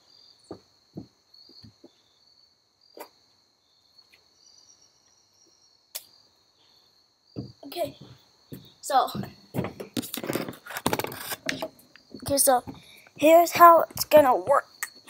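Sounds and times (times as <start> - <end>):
insects chirping: 0.0 - 15.0
soft footsteps: 0.4 - 2.0, 7.4 - 12.9.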